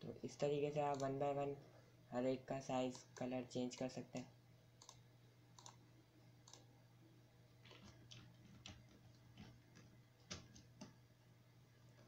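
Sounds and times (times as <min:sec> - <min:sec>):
computer mouse clicking: 0:00.8 - 0:01.2, 0:04.8 - 0:05.0, 0:05.6 - 0:05.8, 0:06.4 - 0:06.7, 0:07.6 - 0:11.0.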